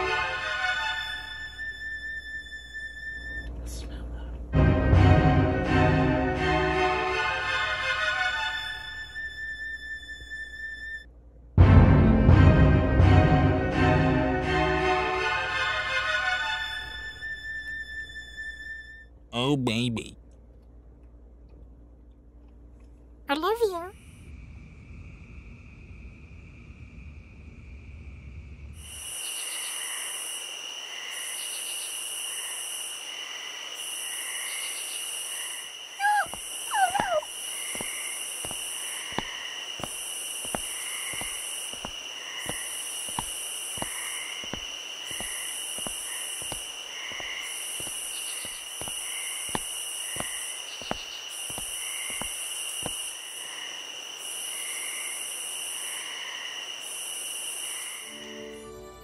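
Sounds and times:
insect trills and chirps: 24.0 - 58.7
pulsing insect buzzing: 29.3 - 58.0
wavering animal call: 36.0 - 37.3.

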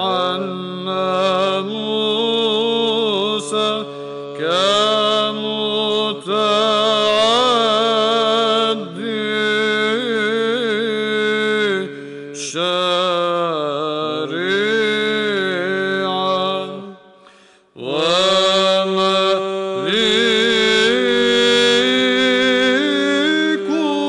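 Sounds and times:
low vocal drone: 0.0 - 11.1, 17.8 - 24.0
man chanting a hymn: 0.0 - 17.1, 17.8 - 24.0.

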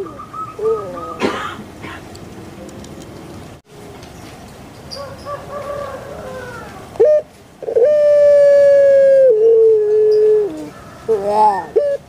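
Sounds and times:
dove long drawn-out call: 0.0 - 2.1, 5.0 - 12.0
dove cooing: 0.0 - 2.8, 5.0 - 12.0.

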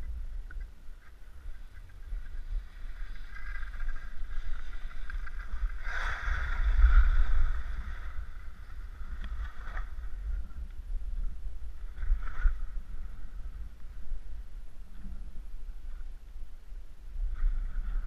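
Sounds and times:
wind on microphone: 0.0 - 18.0
skis scraping over snow: 1.0 - 10.6.

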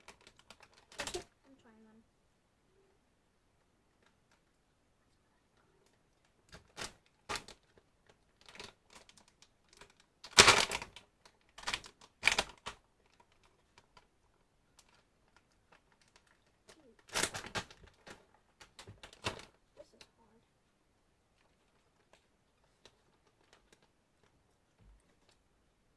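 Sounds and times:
plastic package crinkling: 0.0 - 1.3, 6.2 - 20.1, 21.4 - 25.4.

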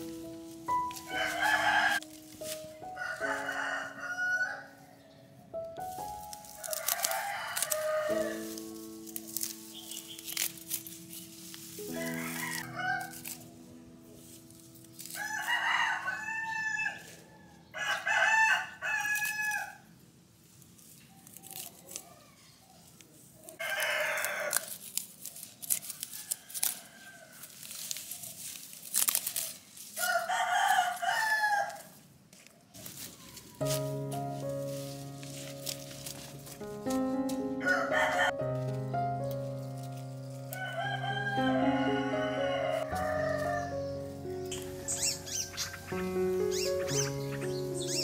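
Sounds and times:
soft background music: 0.0 - 17.4, 33.5 - 48.0
roosters crowing: 0.7 - 2.1, 2.9 - 5.0, 6.5 - 8.7, 11.9 - 13.5, 15.1 - 19.8, 23.6 - 24.8, 30.0 - 32.0, 37.6 - 38.4, 40.5 - 48.0.

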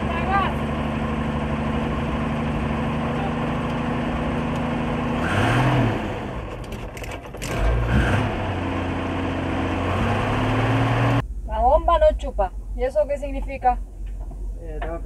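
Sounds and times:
petrol engine idling and revving: 0.0 - 11.4.

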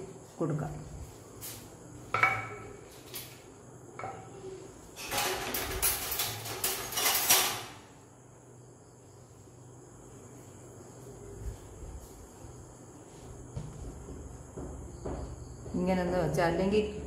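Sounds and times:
metal pan knocking: 2.2 - 2.8.

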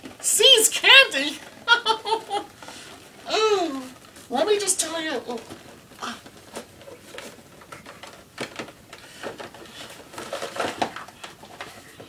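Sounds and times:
cardboard box being opened: 5.3 - 12.0.

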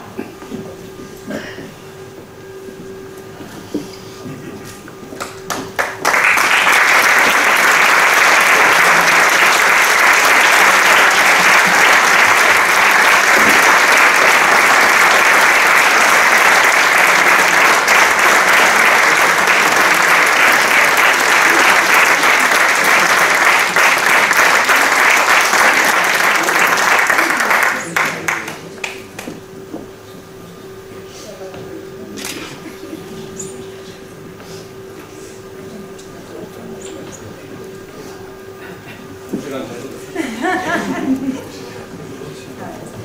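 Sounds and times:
crowd applauding: 5.2 - 29.3.

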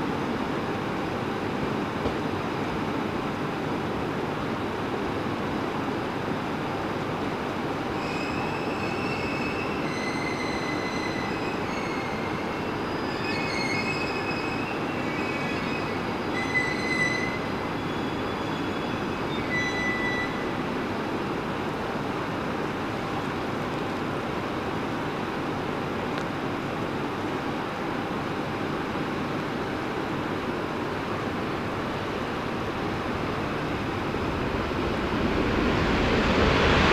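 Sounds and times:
train rumble: 0.0 - 36.9
train wheels squealing: 7.9 - 21.0.

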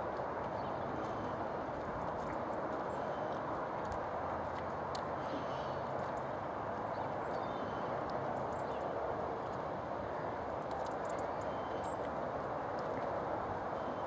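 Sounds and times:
hoofbeats on soft sand: 0.0 - 5.2
steady rushing noise: 0.0 - 14.0.

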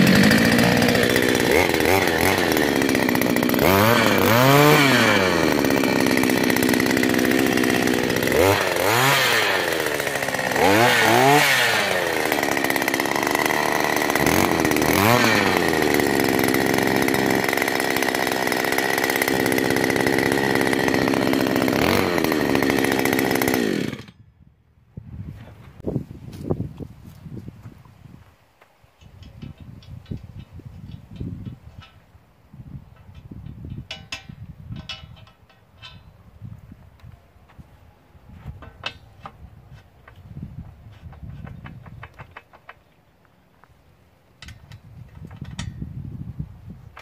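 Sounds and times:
two-stroke engine revving: 0.0 - 24.1.

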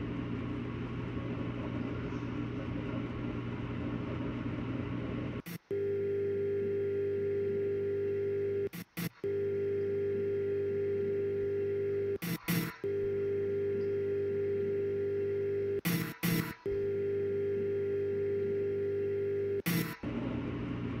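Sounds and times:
steady whirring hum: 0.0 - 21.0
electric buzz: 5.4 - 20.1.

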